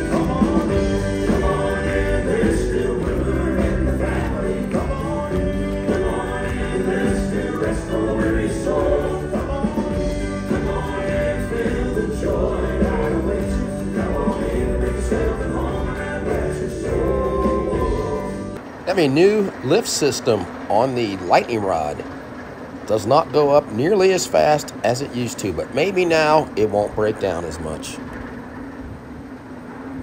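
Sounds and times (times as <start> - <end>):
male quartet singing in harmony: 0.0 - 18.6
backing instruments: 0.0 - 28.7.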